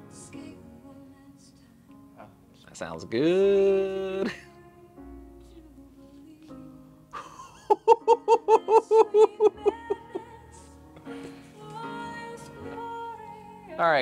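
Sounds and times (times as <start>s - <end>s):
song over speakers: 7.9s - 14.0s.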